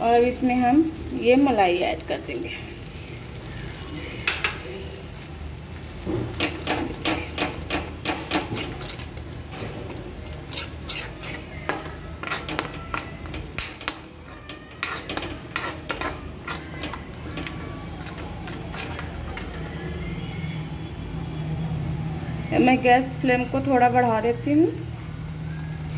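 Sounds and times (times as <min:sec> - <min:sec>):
metal spoon scraping a metal pan: 0:06.4 - 0:19.6.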